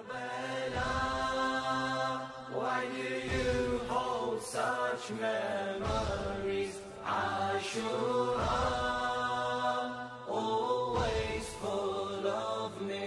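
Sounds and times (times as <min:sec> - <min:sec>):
layered voices chanting: 0:00.0 - 0:13.0
low drum beat: 0:03.3 - 0:04.0, 0:05.8 - 0:06.6.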